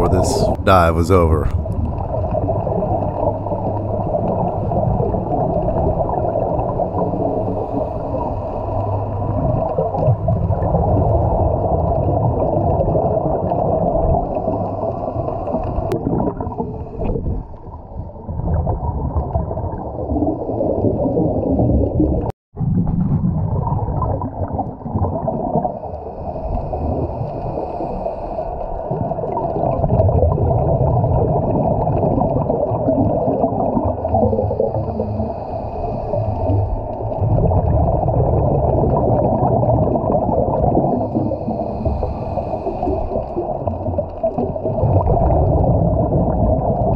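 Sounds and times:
underwater rumble and gurgle: 1.6s - 46.9s.

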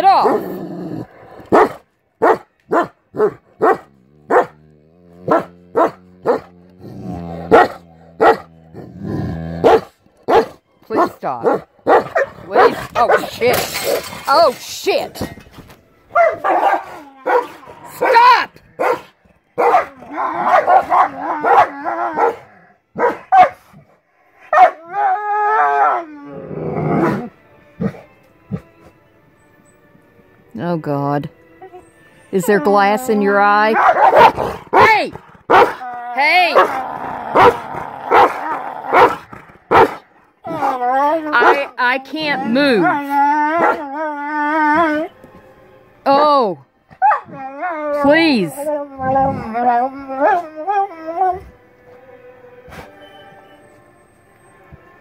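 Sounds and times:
dog growling: 0.1s - 1.8s, 3.2s - 10.0s, 26.0s - 28.7s, 33.8s - 45.1s, 47.4s - 51.4s
dogs barking: 1.4s - 6.6s, 7.4s - 8.9s, 9.6s - 14.1s, 16.1s - 23.8s, 24.4s - 24.9s, 33.7s - 35.8s, 36.5s - 41.7s, 42.8s - 43.9s, 46.9s - 47.4s
dog crying: 16.2s - 19.0s, 19.6s - 23.5s, 33.8s - 45.2s, 47.0s - 51.4s.

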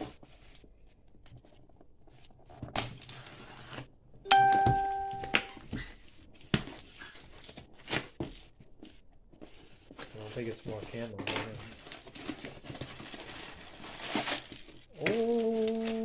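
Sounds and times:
chime-like ding: 4.3s - 5.6s.

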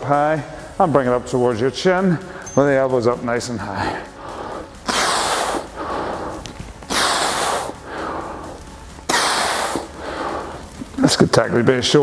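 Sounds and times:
man breathing hard: 3.7s - 11.0s.

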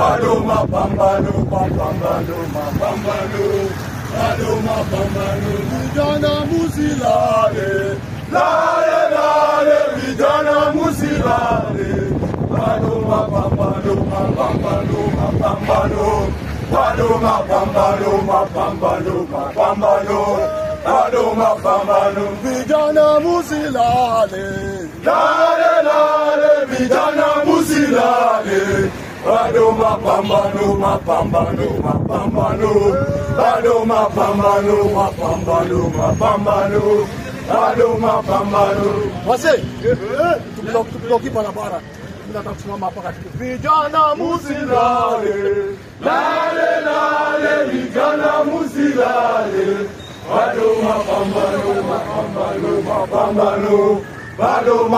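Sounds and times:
men chanting in unison: 0.0s - 41.6s, 43.4s - 54.9s.

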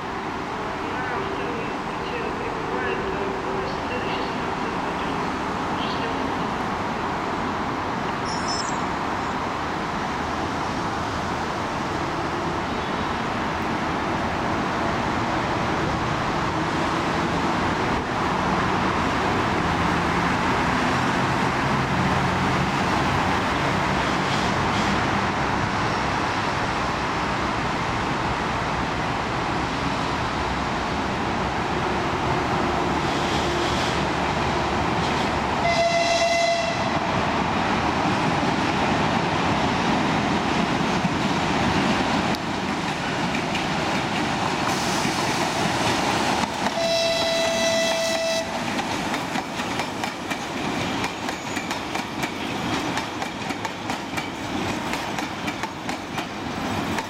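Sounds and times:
diesel locomotive rumbling: 0.0s - 57.0s
locomotive horn blast: 35.6s - 37.0s, 46.8s - 48.6s.

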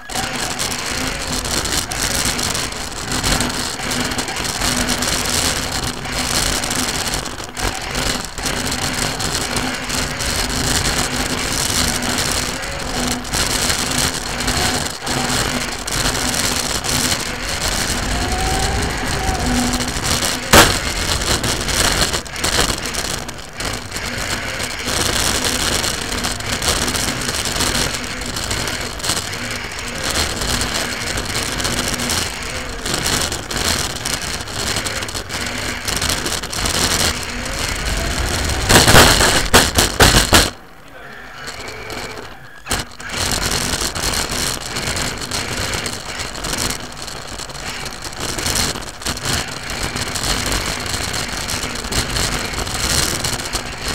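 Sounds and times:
rc car motor and drivetrain rattle: 0.0s - 53.9s
loud clattering knocks: 0.4s - 40.6s.

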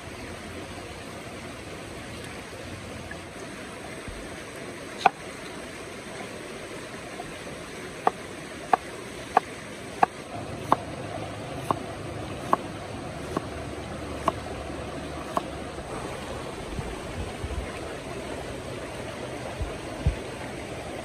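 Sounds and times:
stream rushing: 0.0s - 21.0s
knife chopping on wooden board: 12.4s - 12.6s, 13.3s - 13.5s.

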